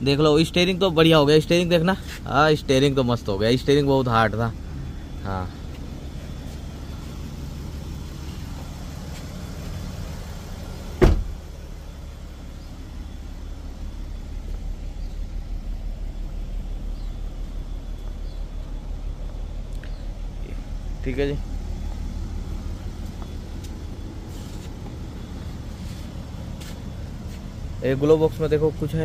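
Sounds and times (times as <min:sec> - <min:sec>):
car engine idling: 0:00.0 - 0:29.0
low even pulsing: 0:00.0 - 0:29.0
loud sharp thump: 0:11.0 - 0:11.4.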